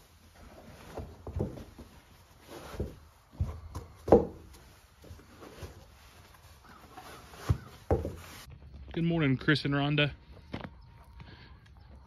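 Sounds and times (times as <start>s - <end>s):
leather boots scuffing: 0.3s - 8.6s
boot heels thudding on wood: 2.7s - 4.6s, 7.4s - 8.3s.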